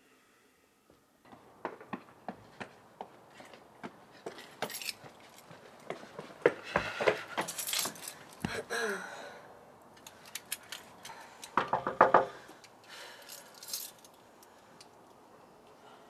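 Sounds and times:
footsteps: 1.3s - 8.6s
light metallic jangling: 4.3s - 5.5s, 7.4s - 8.4s, 10.0s - 11.6s, 12.7s - 14.6s
knocking on a wooden door: 11.6s - 12.3s.

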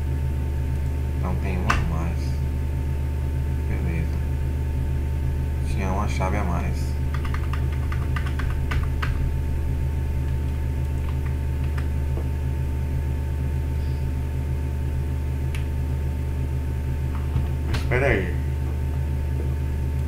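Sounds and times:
low electrical hum: 0.0s - 20.0s
computer keyboard keystrokes: 7.1s - 9.2s, 10.2s - 11.9s.

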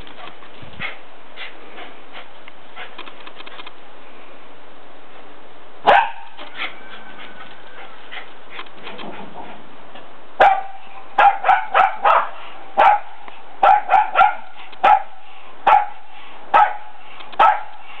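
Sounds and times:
dog barking: 5.9s - 6.8s, 10.4s - 17.8s.

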